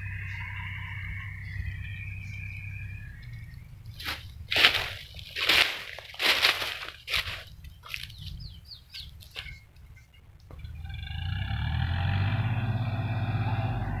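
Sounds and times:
bird chirping: 0:00.0 - 0:05.6, 0:06.6 - 0:11.2
tractor diesel engine running: 0:00.0 - 0:14.0.

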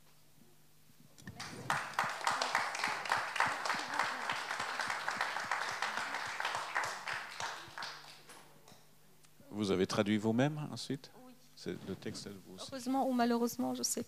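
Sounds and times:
audience applauding: 0:01.2 - 0:08.5.

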